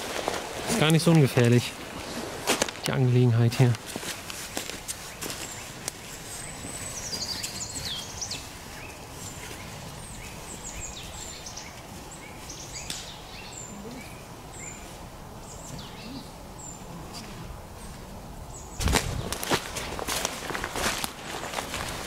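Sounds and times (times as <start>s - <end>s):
footsteps in dry leaves: 0.0s - 15.1s, 18.8s - 22.0s
background hiss: 0.0s - 22.0s
small birds chirping: 2.9s - 19.5s.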